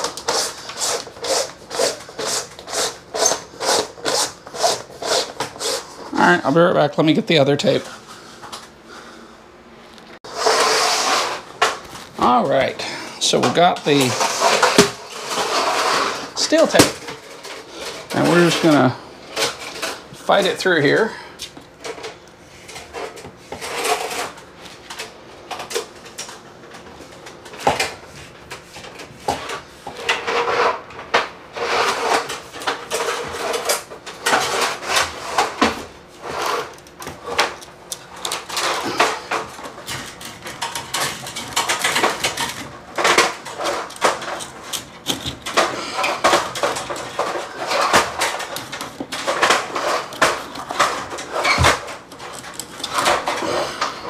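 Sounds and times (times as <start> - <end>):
fish tape scraping in conduit: 0.0 - 6.1, 10.3 - 11.5, 13.9 - 16.7.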